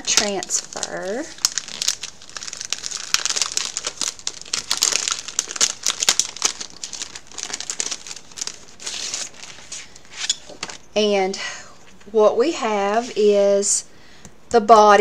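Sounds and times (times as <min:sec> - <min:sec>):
packaging crinkling: 0:00.0 - 0:10.9.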